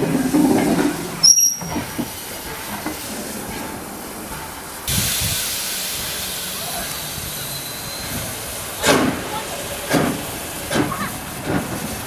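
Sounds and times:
train wheels rumbling on rails: 0:00.0 - 0:12.0
high-pitched wheel squeal: 0:01.2 - 0:01.8.

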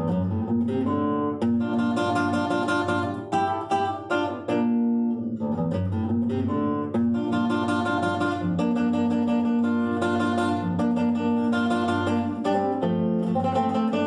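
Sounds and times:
classical guitar fingerstyle: 0:00.0 - 0:14.0.

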